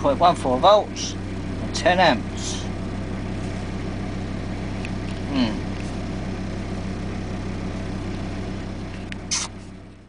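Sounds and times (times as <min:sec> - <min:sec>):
vehicle engine idling: 0:00.0 - 0:10.0
brief hiss: 0:09.3 - 0:09.6.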